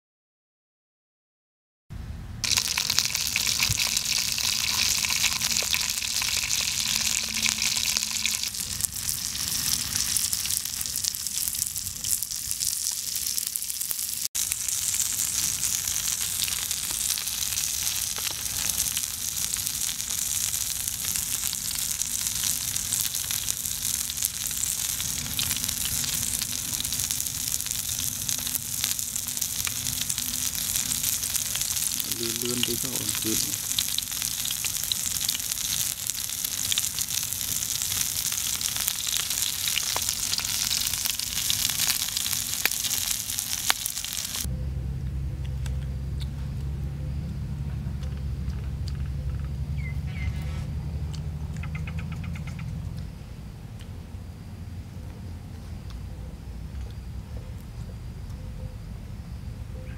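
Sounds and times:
fish sizzling in a metal pan: 0:02.4 - 0:44.5.

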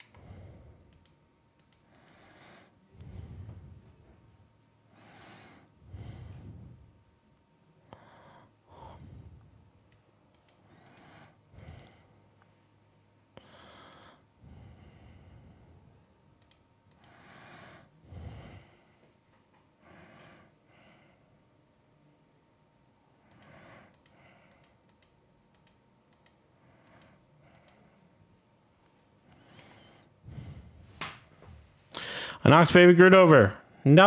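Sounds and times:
faint breaths and sighs: 0:00.0 - 0:22.2, 0:23.0 - 0:32.5
light clicks: 0:23.3 - 0:27.8.

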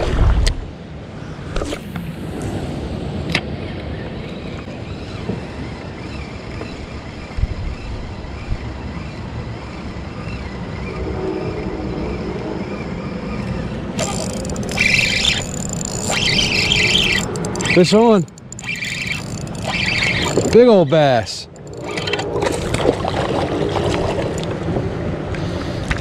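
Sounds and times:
wind noise on microphone: 0:04.7 - 0:13.1
water lapping at hull: 0:14.0 - 0:26.0.

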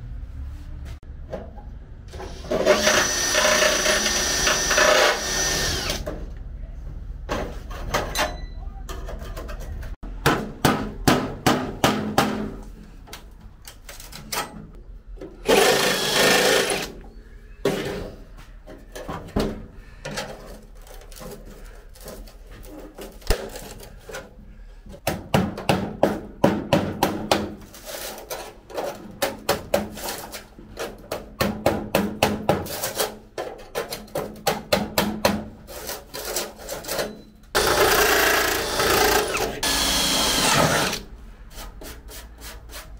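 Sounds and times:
hand tool scraping: 0:27.6 - 0:29.2, 0:35.6 - 0:42.9.

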